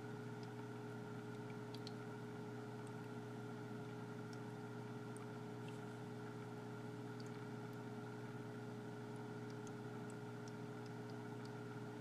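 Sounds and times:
faint ticks: 0.3s - 2.0s.

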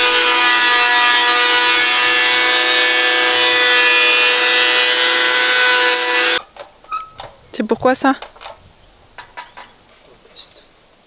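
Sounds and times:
electric hand planer whining: 0.0s - 6.4s
hiss of cutting wood: 0.0s - 6.4s.

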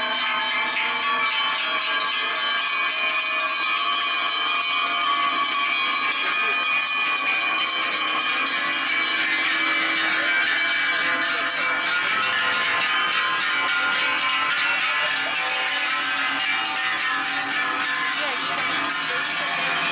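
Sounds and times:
cowbells clanging: 0.0s - 19.9s.

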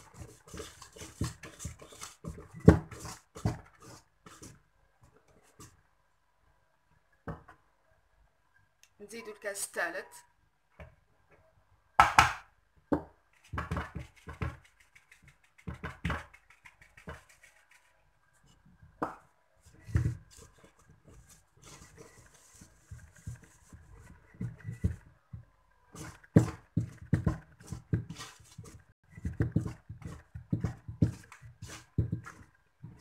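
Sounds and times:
whisk scraping metal bowl: 0.0s - 4.4s
flour tapped through plastic sieve: 12.0s - 17.4s.

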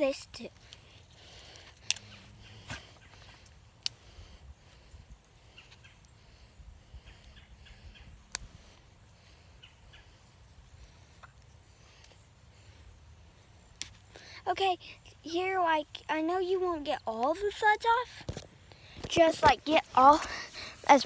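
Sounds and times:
faint outdoor background: 0.0s - 21.0s
twig clicks and snaps: 0.5s - 4.2s, 5.2s - 6.2s, 8.2s - 8.8s, 10.7s - 12.2s, 13.6s - 14.2s.

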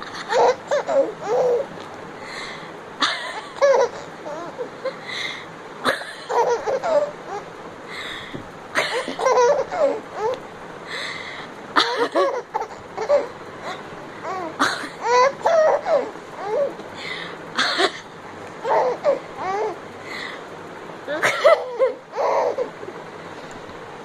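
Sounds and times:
baby laughing: 0.0s - 1.7s, 3.0s - 5.0s, 5.9s - 7.5s, 8.8s - 10.4s, 11.8s - 16.8s, 18.6s - 19.8s, 21.1s - 22.9s.

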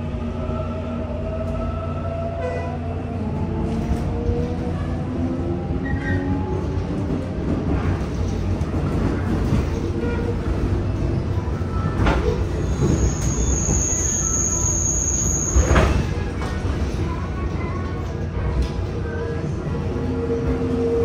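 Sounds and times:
train wheels and motors rumbling: 0.0s - 21.0s
high wheel squeal: 12.6s - 16.0s.

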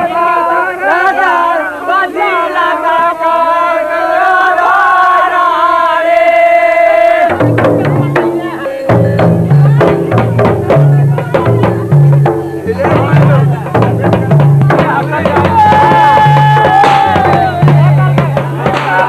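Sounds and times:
voices singing long notes: 0.0s - 19.0s
low and high drum strokes: 7.3s - 19.0s.

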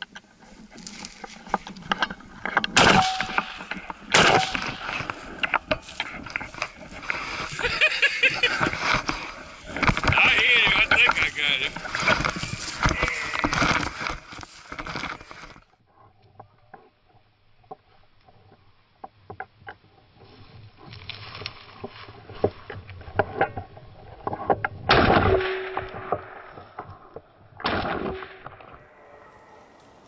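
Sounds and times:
footsteps through dry grass: 0.0s - 15.7s, 20.0s - 22.7s.

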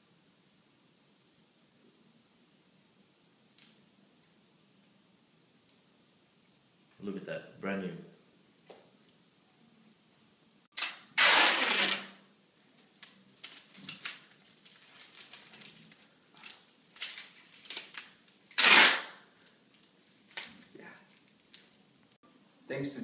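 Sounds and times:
adhesive tape ripping: 10.7s - 12.2s, 13.0s - 21.7s
tape crinkling and clicking: 12.8s - 21.9s.

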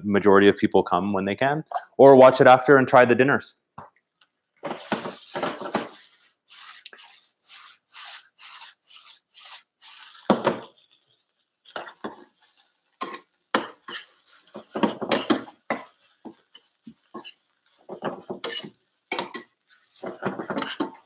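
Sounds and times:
utensil scraping frying pan: 4.6s - 10.8s, 11.6s - 21.0s.

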